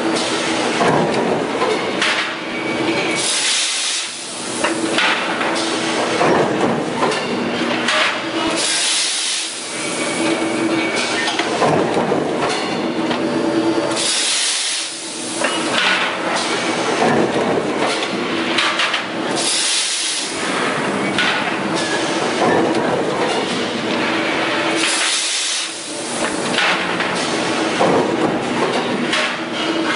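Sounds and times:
metallic clanks and knocks: 4.9s - 8.2s, 15.5s - 19.1s, 20.5s - 24.1s, 26.5s - 29.9s
hissing bursts of steam: 8.6s - 10.0s, 14.0s - 15.5s, 19.3s - 20.5s, 24.8s - 26.4s.

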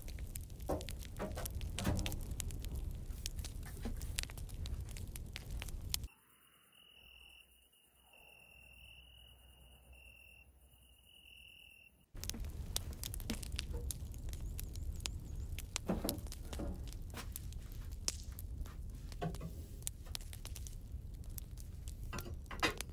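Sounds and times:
irregular crackles and clicks: 0.0s - 6.1s, 12.2s - 22.9s
high insect chirping: 6.1s - 12.1s.

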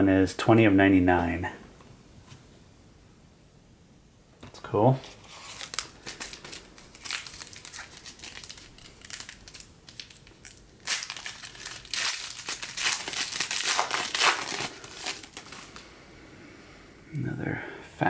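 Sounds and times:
foil wrapper crinkling: 5.0s - 15.8s.

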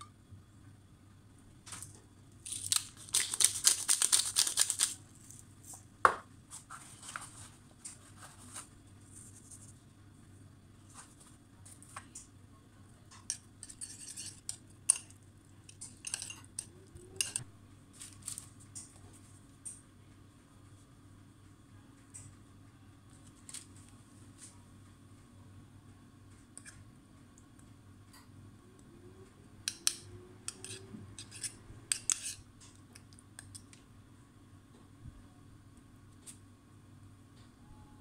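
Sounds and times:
pepper mill grinding: 2.4s - 5.0s, 29.7s - 32.4s.

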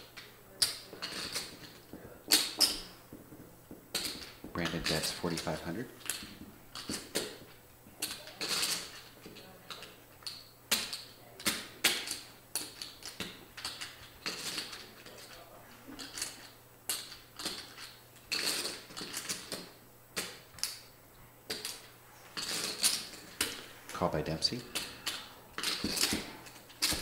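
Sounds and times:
poker chips clicking together: 16.0s - 19.6s.

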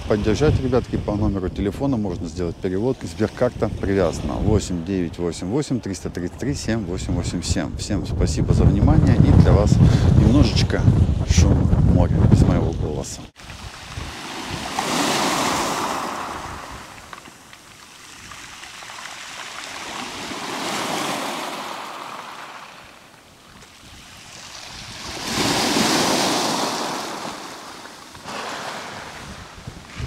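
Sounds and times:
waves breaking on pebble beach: 13.4s - 30.0s.

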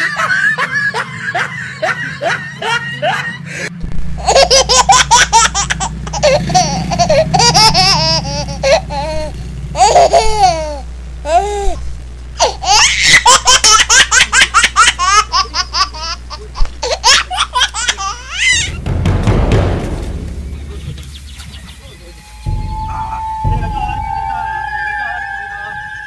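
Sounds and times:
high-pitched laughter: 0.0s - 11.8s, 12.4s - 18.7s
low steady hum: 3.8s - 26.0s.

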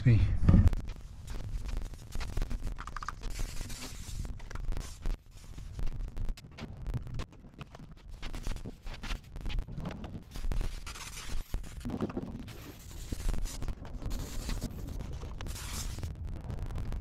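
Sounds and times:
low rumble: 13.5s - 17.0s.

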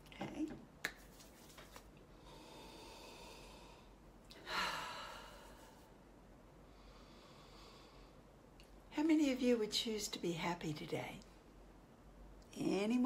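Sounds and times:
woman breathing deeply: 2.1s - 5.9s, 6.6s - 8.3s.

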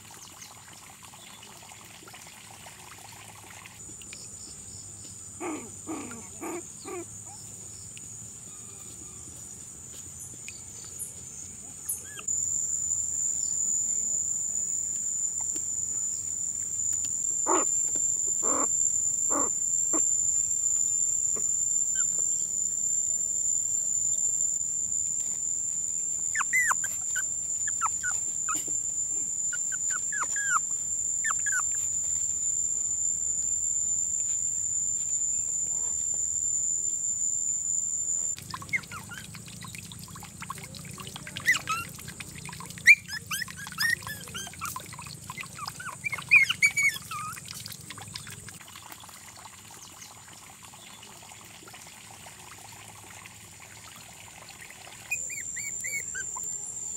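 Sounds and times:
puppies squeaking and whimpering: 5.4s - 7.1s, 11.9s - 12.3s, 17.4s - 18.7s, 19.3s - 20.1s, 21.9s - 22.2s, 26.3s - 28.8s, 29.5s - 32.2s, 38.3s - 39.8s, 40.4s - 47.4s, 55.1s - 56.5s
insects shrilling: 11.9s - 48.5s, 55.1s - 56.9s.

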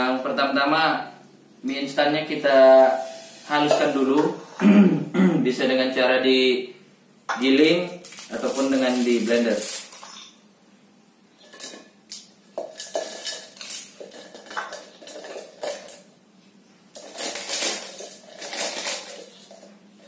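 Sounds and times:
dry noodles crumbling by hand: 7.9s - 10.1s, 16.9s - 19.6s.

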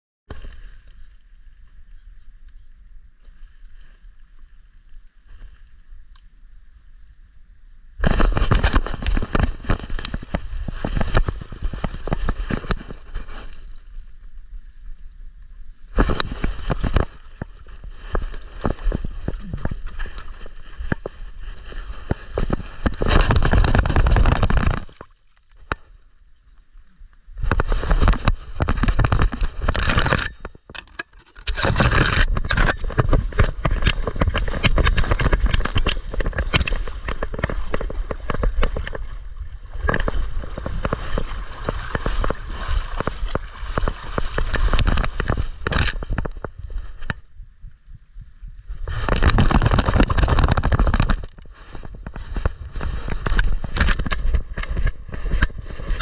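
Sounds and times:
splashing in shallow water: 8.0s - 15.0s, 15.7s - 47.3s
camera mount rubbing fur: 27.5s - 39.0s.

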